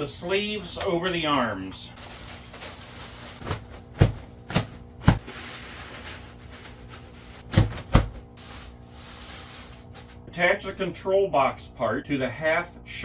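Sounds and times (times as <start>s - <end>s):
cloth sleeves handling noise: 2.0s - 10.2s.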